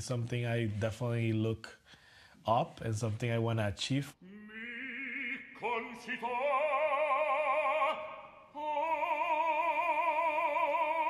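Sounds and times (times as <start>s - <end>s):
operatic baritone singing: 4.1s - 11.0s.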